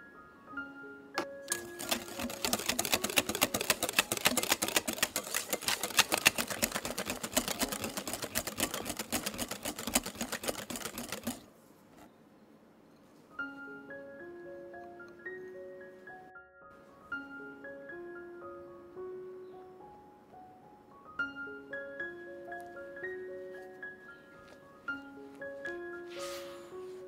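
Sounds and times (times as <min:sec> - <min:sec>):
whisk clicking against glass bowl: 0:01.5 - 0:11.4.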